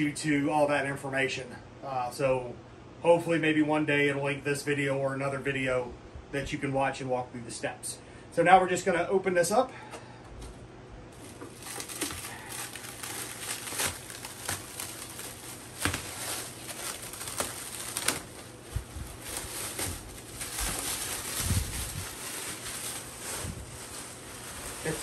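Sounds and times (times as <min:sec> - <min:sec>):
plastic wrap crinkling: 0:11.1 - 0:25.0.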